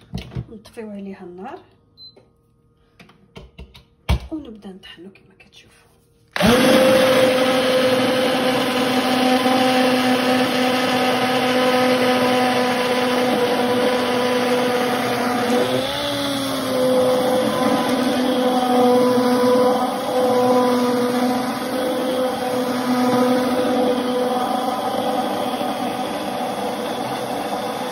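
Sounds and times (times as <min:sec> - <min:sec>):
immersion blender motor whine: 0:06.4 - 0:27.9.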